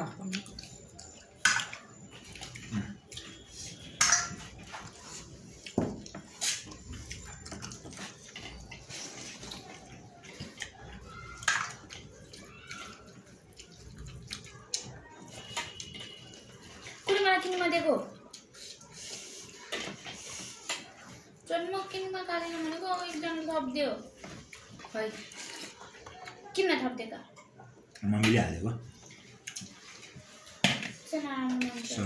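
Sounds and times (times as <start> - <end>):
man chewing: 0.3 - 17.1, 29.0 - 30.6.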